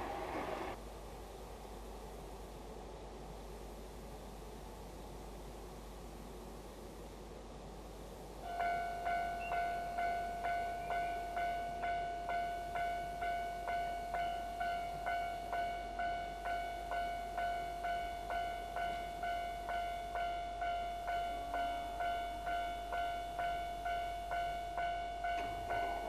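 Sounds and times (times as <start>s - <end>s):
level crossing warning bell: 8.4s - 26.0s.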